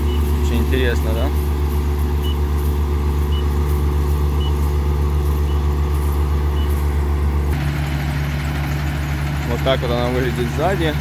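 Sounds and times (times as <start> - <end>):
combine harvester engine hum: 0.0 - 11.0
short high beeps: 6.5 - 6.8.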